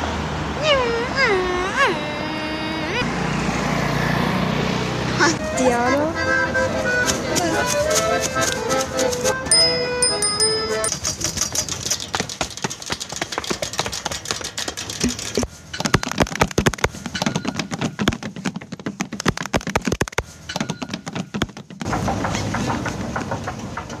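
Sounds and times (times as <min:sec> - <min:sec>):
rapid clicks and taps: 0:07.0 - 0:09.5, 0:10.8 - 0:22.0.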